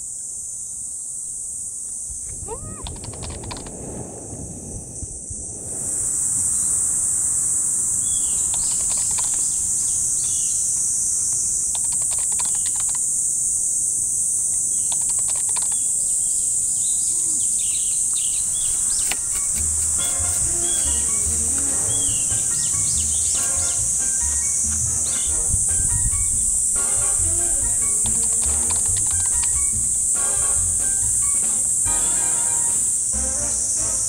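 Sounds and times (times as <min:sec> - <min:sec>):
cicadas droning: 0:00.0 - 0:34.0
rapid clicking: 0:02.8 - 0:03.8, 0:08.4 - 0:10.4, 0:11.6 - 0:13.2, 0:14.8 - 0:16.0, 0:18.9 - 0:31.9
bird chirps: 0:08.0 - 0:10.7, 0:16.8 - 0:29.8
soft music: 0:19.2 - 0:34.0.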